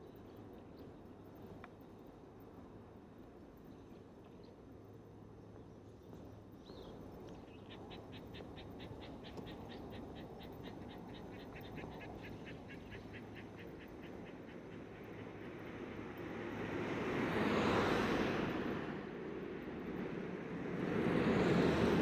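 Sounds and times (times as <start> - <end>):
low steady background noise: 0.0 - 22.0.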